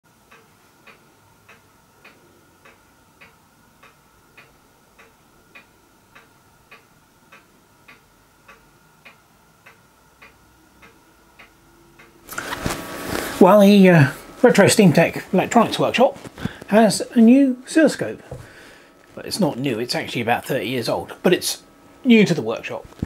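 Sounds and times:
clock ticking: 0.1 - 12.2.

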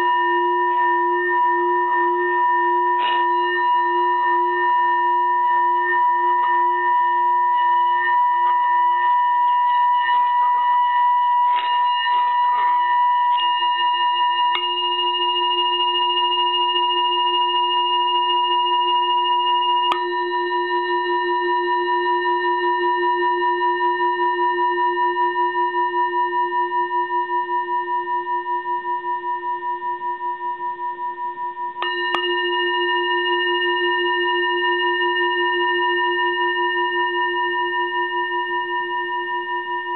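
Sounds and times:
singing bowl ringing: 0.0 - 39.9.

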